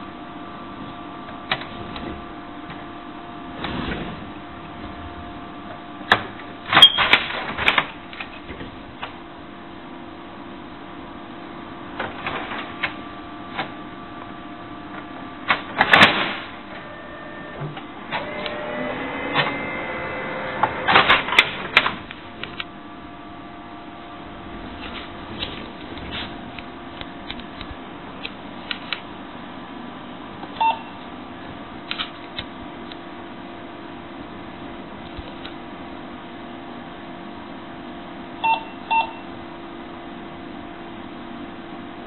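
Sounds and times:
steady low hum: 0.0s - 42.0s
printer motors whirring: 16.6s - 22.6s.

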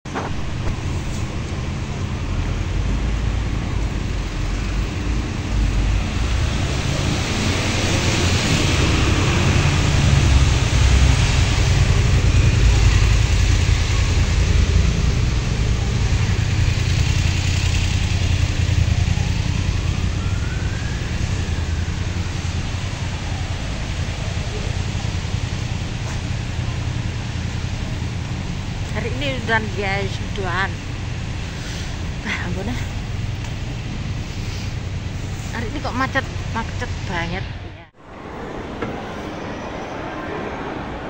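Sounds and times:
passing cars rumble: 0.1s - 41.0s
tyres hissing on wet road: 0.4s - 37.1s
faint whine: 35.0s - 41.0s.

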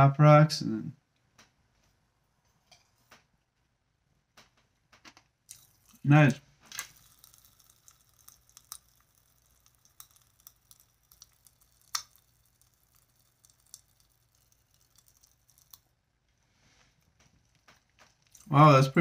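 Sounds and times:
popping candy crackling in mouth: 4.4s - 19.0s.

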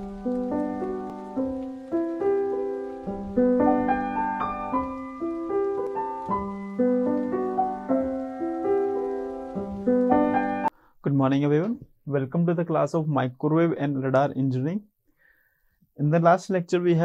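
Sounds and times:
piano chords: 0.0s - 10.7s.

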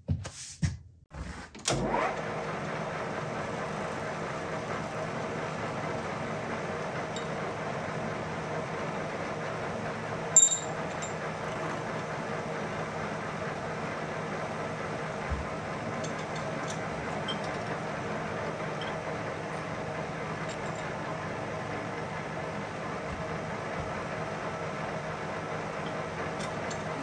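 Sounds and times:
metal lathe running: 1.8s - 27.0s
sharp metallic clink: 10.4s - 11.1s.

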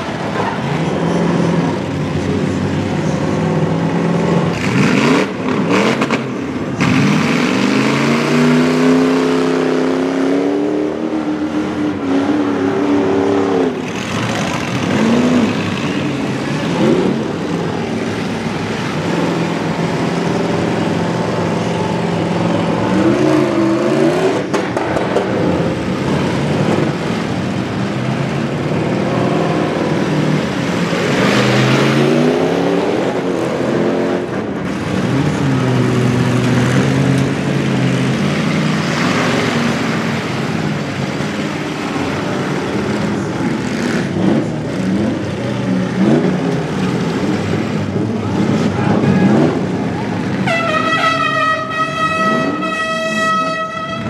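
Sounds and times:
truck engines revving: 0.0s - 54.0s.

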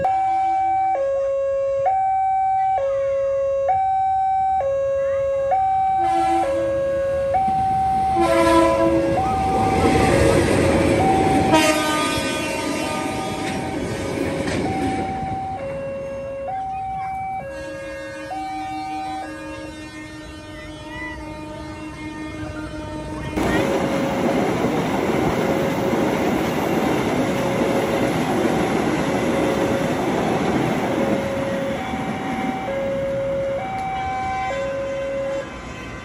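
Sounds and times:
level crossing alarm two-tone: 0.0s - 11.8s, 14.5s - 19.4s, 29.3s - 35.4s
diesel locomotive engine: 0.0s - 36.0s
train horn blasts: 6.0s - 6.8s, 8.1s - 10.1s, 11.4s - 13.8s, 17.4s - 23.4s, 31.4s - 36.0s
train wheels on rails: 7.4s - 17.7s, 23.4s - 36.0s.

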